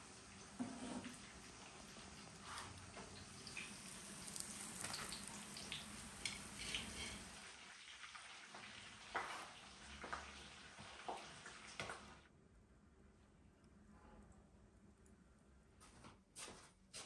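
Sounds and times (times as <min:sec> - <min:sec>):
hot oil sizzling: 0:00.0 - 0:12.2.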